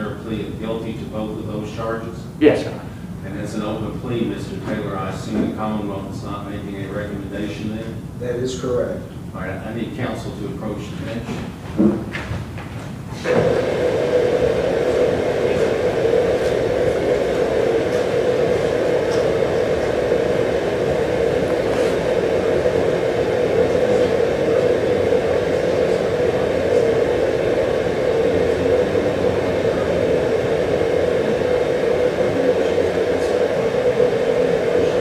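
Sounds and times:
white noise rushing: 0:13.2 - 0:35.0.

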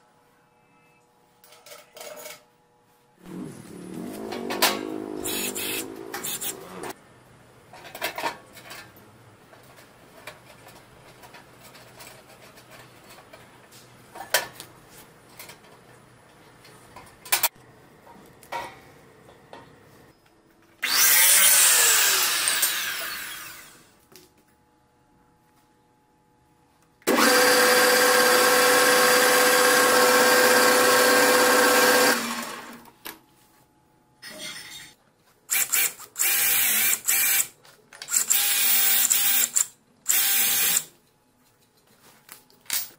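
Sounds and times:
power tool running: 0:03.3 - 0:07.0, 0:20.8 - 0:23.9, 0:27.1 - 0:32.8, 0:35.5 - 0:37.5
mitre saw running: 0:04.0 - 0:06.9, 0:20.8 - 0:23.8, 0:27.1 - 0:32.8
electric drill boring into wood: 0:05.2 - 0:06.6, 0:20.8 - 0:23.8, 0:27.1 - 0:32.8, 0:35.5 - 0:37.5, 0:38.1 - 0:40.9.

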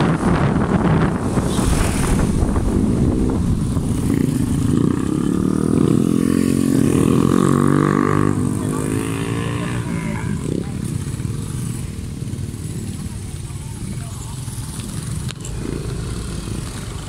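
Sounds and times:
rushing wind: 0:00.0 - 0:13.2.

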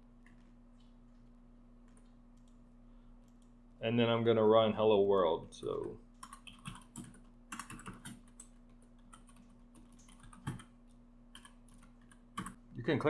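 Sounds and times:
faint computer keyboard typing: 0:00.2 - 0:02.6, 0:03.2 - 0:03.6, 0:05.7 - 0:12.6.

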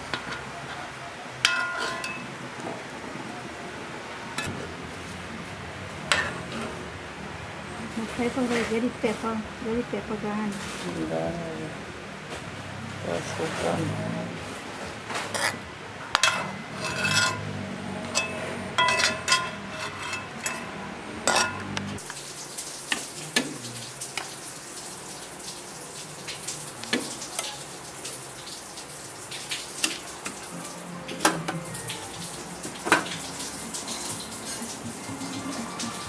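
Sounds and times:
metal spoon scraping a pot: 0:01.5 - 0:02.2, 0:15.3 - 0:21.6.

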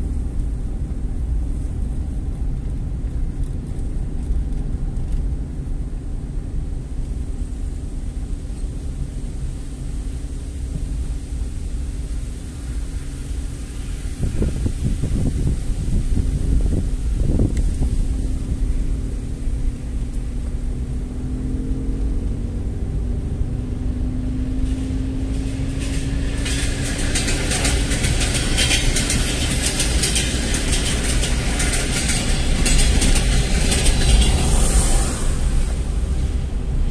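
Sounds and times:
dense crackling hiss: 0:00.0 - 0:21.1
road and engine rumble in car: 0:00.0 - 0:36.9.

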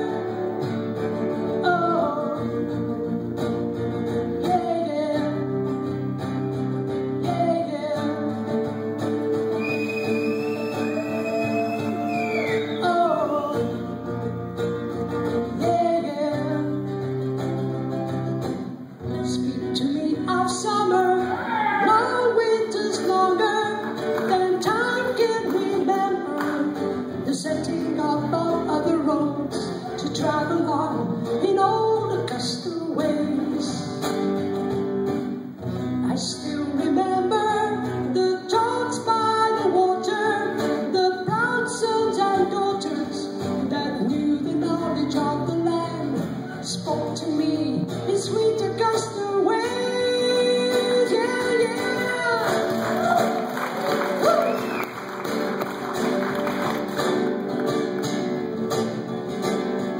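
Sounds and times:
man singing: 0:00.0 - 0:03.0, 0:04.1 - 0:06.1, 0:06.9 - 0:08.7, 0:09.6 - 0:14.0, 0:15.3 - 0:17.4, 0:19.0 - 0:34.4, 0:36.0 - 0:53.4
acoustic guitar: 0:00.0 - 0:59.9.

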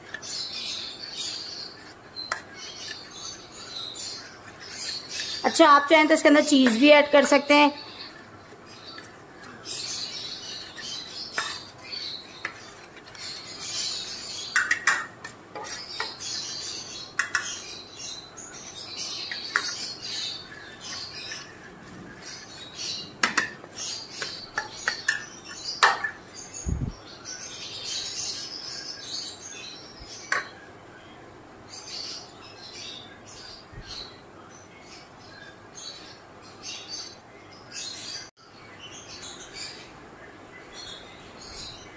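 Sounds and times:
spoon stirring batter in bowl: 0:00.0 - 0:13.9, 0:14.5 - 0:16.2, 0:19.2 - 0:26.2
birds chirping: 0:00.0 - 0:41.9.

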